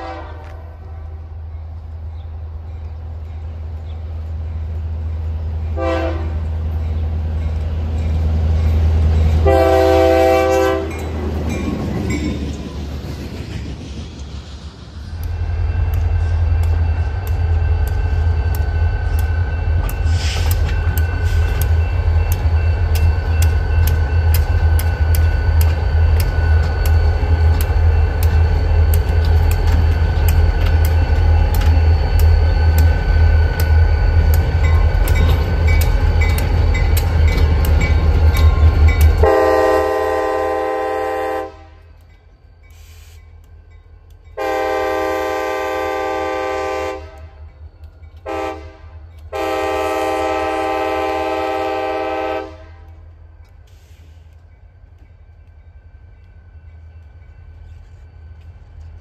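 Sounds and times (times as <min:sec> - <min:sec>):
distant locomotive horn: 0:00.0 - 0:01.4, 0:05.7 - 0:06.7, 0:09.3 - 0:11.1, 0:39.1 - 0:42.0, 0:44.4 - 0:47.5, 0:48.2 - 0:53.1
wheels clicking over rail joints: 0:15.1 - 0:39.3.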